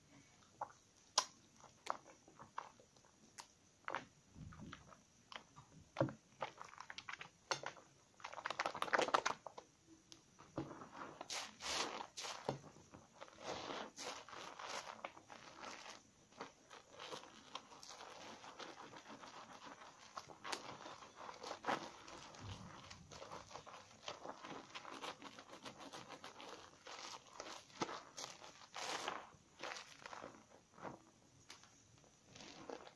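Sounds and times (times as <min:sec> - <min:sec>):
wet squishing and rubbing of soap: 0:00.0 - 0:32.9
foam bubbles crackling: 0:10.3 - 0:32.9.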